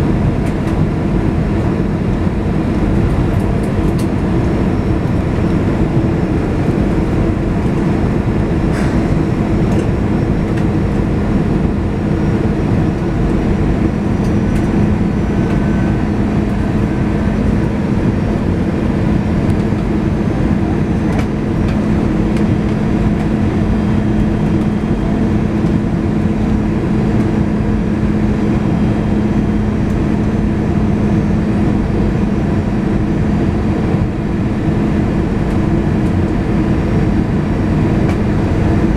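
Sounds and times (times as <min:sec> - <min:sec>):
airplane cabin drone: 0:00.0 - 0:38.9.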